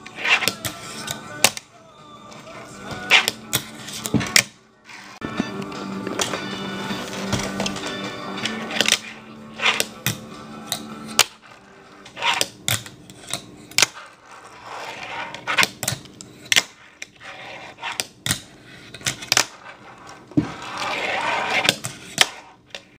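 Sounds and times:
tiny wheels rolling on desk: 19.4 - 21.8.

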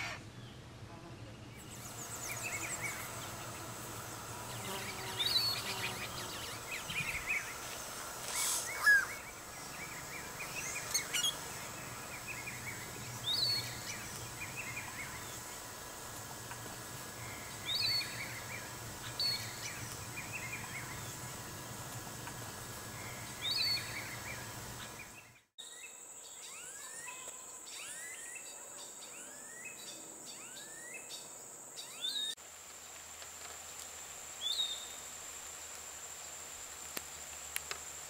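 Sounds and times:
steady background hiss: 0.0 - 38.0
birds chattering and whistling: 1.5 - 15.7, 22.9 - 25.9.

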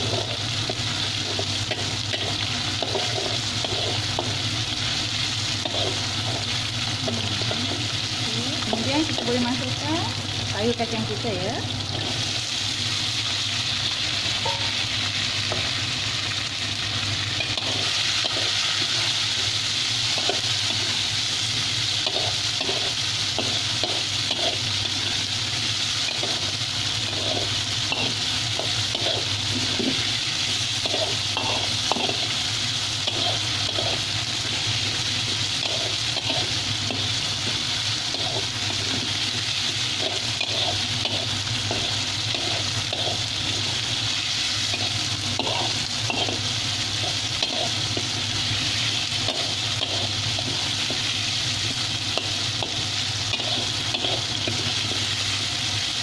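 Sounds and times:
food sizzling in hot oil: 0.0 - 56.0
metal spatula scraping a wok: 27.0 - 30.0, 33.0 - 34.1, 40.0 - 43.8.

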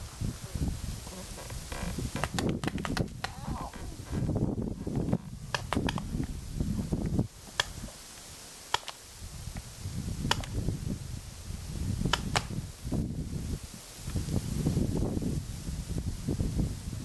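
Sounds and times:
paintball markers firing: 2.2 - 3.4, 5.5 - 6.4, 7.4 - 7.9, 8.7 - 9.0, 10.2 - 10.6, 12.1 - 12.6.

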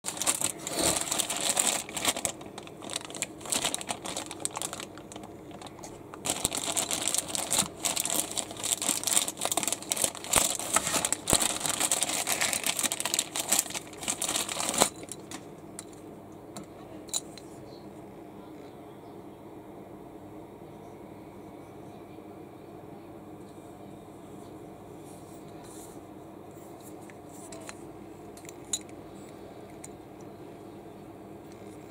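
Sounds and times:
plastic bag crinkling: 0.0 - 15.5.

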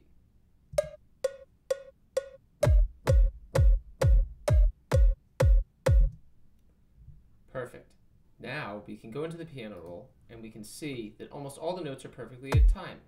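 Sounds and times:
electronic kick drum: 0.8 - 6.2, 12.5 - 12.8
metronome clicks: 0.8 - 6.2.

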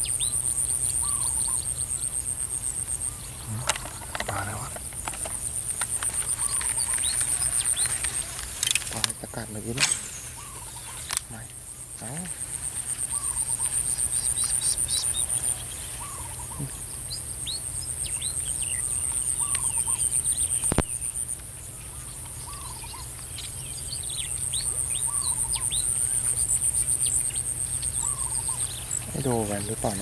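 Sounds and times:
insect trilling: 0.0 - 30.0
small birds chirping: 0.0 - 30.0
sharp click: 8.4 - 11.6
bird repeating short call: 9.6 - 11.4.

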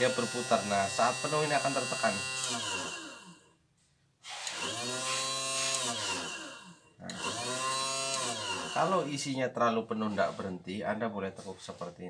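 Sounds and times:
small motor whining: 0.0 - 3.6, 4.2 - 9.3.

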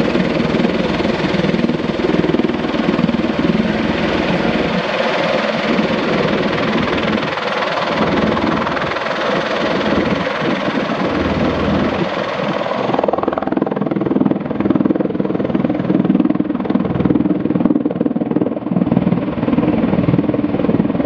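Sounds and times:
fast pulsing rotor beat: 0.0 - 14.8
aircraft engines and rotors roaring: 0.0 - 21.0.

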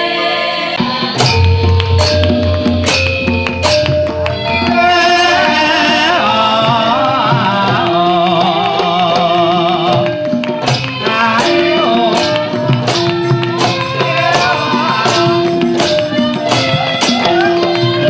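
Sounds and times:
gamelan music: 0.7 - 18.0
drum strokes: 0.8 - 18.0
hands clapping: 1.4 - 4.8, 6.6 - 18.0
woman singing: 4.3 - 9.6, 10.7 - 18.0.

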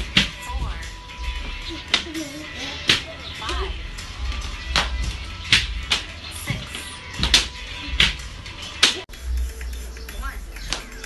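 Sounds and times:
background music: 0.0 - 11.0
hands slapping wooden bench: 2.9 - 3.6, 4.7 - 9.0.

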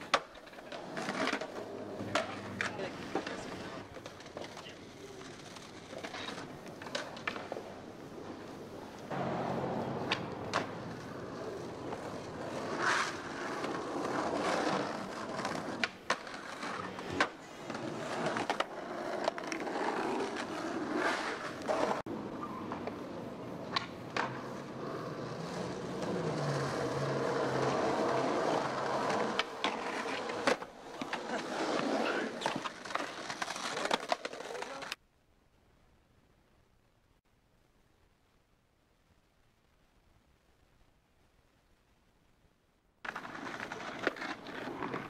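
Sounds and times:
skateboard deck clacks: 0.0 - 22.0, 23.6 - 35.0
skateboard wheels rolling: 0.0 - 35.0, 43.0 - 45.0.

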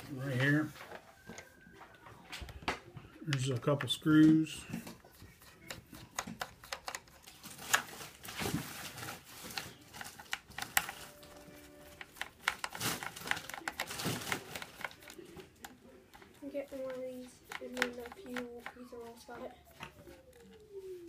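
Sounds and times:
screwdriver clicking in screw heads: 5.6 - 7.2.

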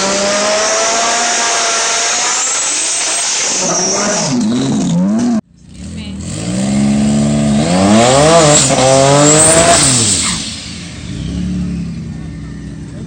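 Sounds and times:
car engine revving: 0.0 - 13.0.

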